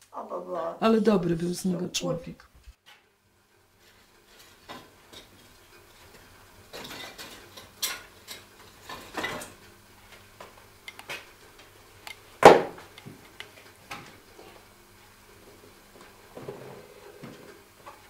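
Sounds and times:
pots and dishes clattering: 3.8 - 9.6.

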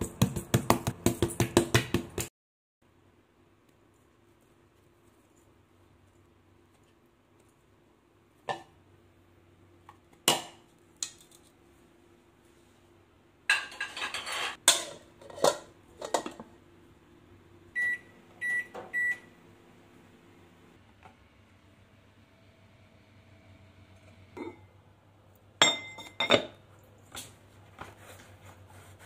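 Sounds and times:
crockery clattering in sink: 13.5 - 16.4, 25.6 - 26.6
microwave keypad beeps: 17.8 - 19.3.

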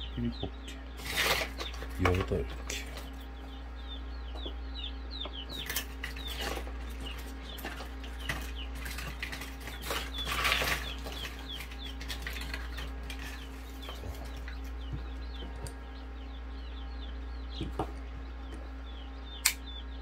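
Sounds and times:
chicks peeping: 0.0 - 20.0
steady low hum: 0.0 - 20.0
eggshell crackling: 5.5 - 15.8.

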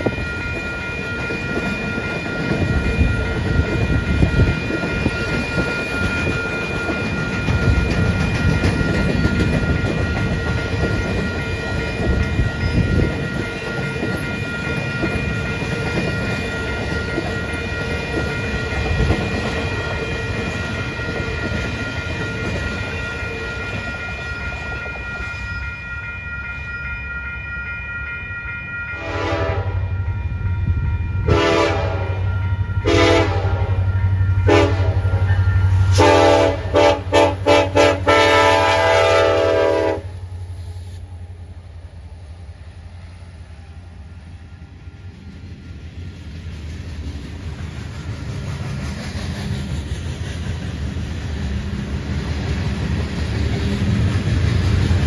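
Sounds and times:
train wheel clatter: 0.0 - 25.2, 45.1 - 55.0
locomotive air horn blasts: 29.0 - 29.8, 31.2 - 33.8, 34.4 - 35.2, 35.8 - 40.2.

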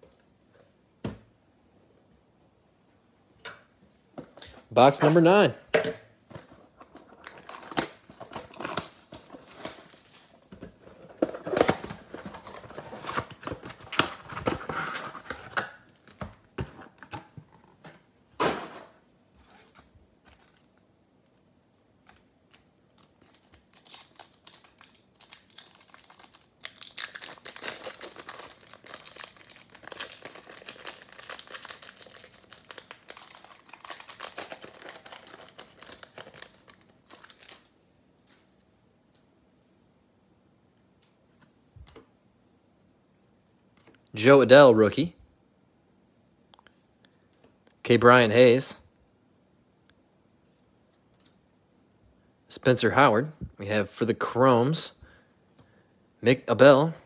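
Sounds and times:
plastic wrapping crinkling and tearing: 6.7 - 10.5, 22.1 - 38.4
card pack wrapper crinkling: 6.8 - 10.4, 22.1 - 38.4.

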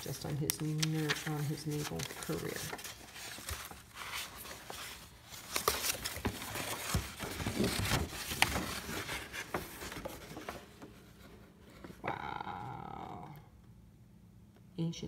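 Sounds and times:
stiff paper crinkling: 0.0 - 10.9.

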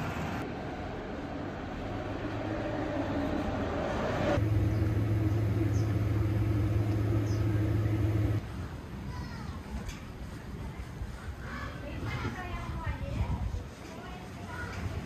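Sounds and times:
street noise: 0.0 - 15.0
low mechanical hum: 1.4 - 9.0.

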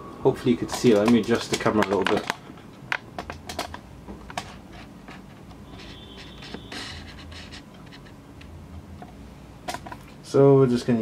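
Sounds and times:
thin high whine: 5.6 - 7.4.

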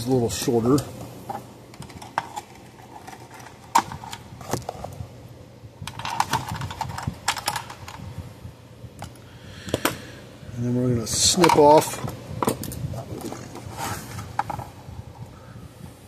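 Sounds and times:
plastic case clicks and rattles: 1.7 - 4.8, 5.9 - 8.0.

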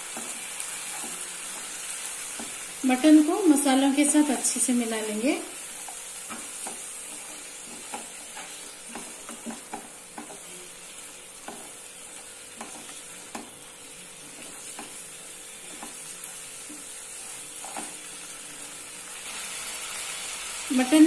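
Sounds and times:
meat frying with steady sizzle: 0.0 - 21.0
spatula tapping and scraping pan: 0.1 - 2.7, 5.8 - 13.6, 14.2 - 18.1.

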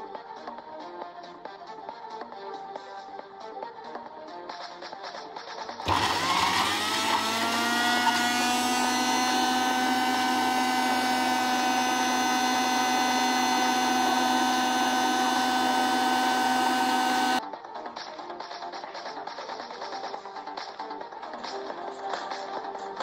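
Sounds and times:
blender motor whining: 5.8 - 17.4.

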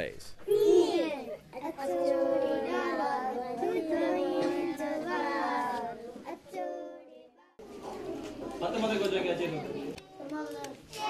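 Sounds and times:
girls singing in unison: 1.8 - 7.6.

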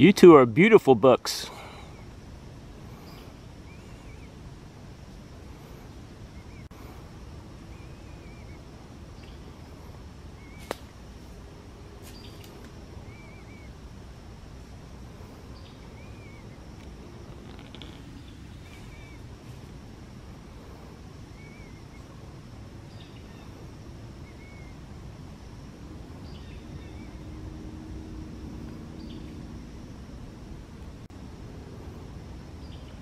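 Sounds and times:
low background rumble: 1.4 - 33.0
small bird chirping: 2.9 - 4.5, 7.6 - 9.7, 10.3 - 10.8, 12.0 - 13.8, 15.4 - 19.6, 21.3 - 22.1, 22.8 - 24.9, 28.6 - 29.7
sharp snap: 10.6 - 11.0.

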